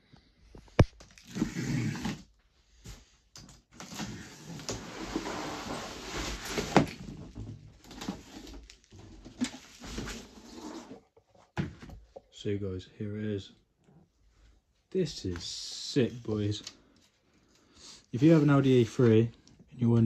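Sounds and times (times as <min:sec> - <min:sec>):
cardboard scraping: 0:01.2 - 0:02.2, 0:03.8 - 0:11.8.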